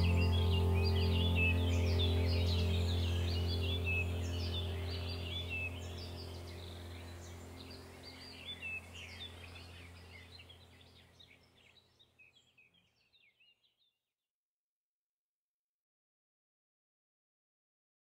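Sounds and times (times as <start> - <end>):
steady low hum: 0.0 - 11.5
birds chirping: 0.0 - 13.7.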